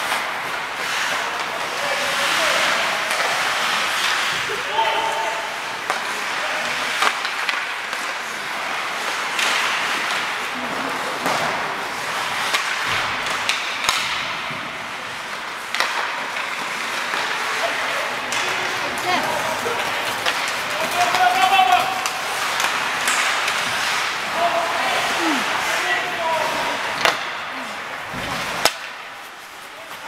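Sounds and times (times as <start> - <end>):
skate blades scraping ice: 0.0 - 30.0
sticks knocking puck: 11.2 - 14.5, 15.2 - 26.1, 26.7 - 27.4, 28.1 - 29.2.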